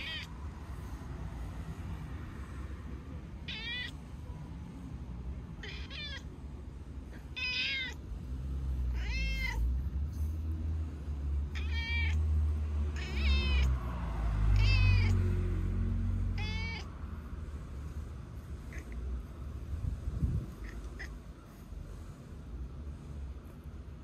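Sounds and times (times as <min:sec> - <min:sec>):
cat meowing: 0:00.0 - 0:00.4, 0:03.4 - 0:04.2, 0:05.5 - 0:06.4, 0:07.1 - 0:08.0, 0:08.8 - 0:09.8, 0:11.5 - 0:12.3, 0:12.9 - 0:13.8, 0:14.5 - 0:15.3, 0:16.3 - 0:16.9, 0:20.5 - 0:21.3
steady low rumble: 0:16.1 - 0:24.0.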